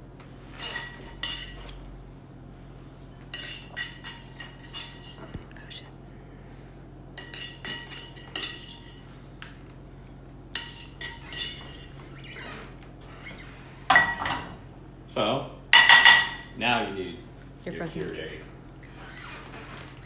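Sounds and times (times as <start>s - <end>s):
metal tongs clinking and scraping: 0.6s - 1.8s, 3.3s - 5.3s, 7.2s - 9.0s, 10.6s - 12.0s.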